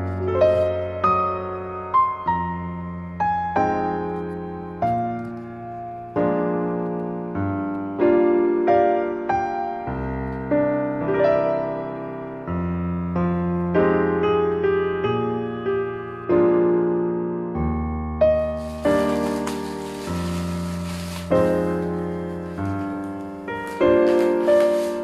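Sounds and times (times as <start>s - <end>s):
gentle piano music: 0.0s - 25.0s.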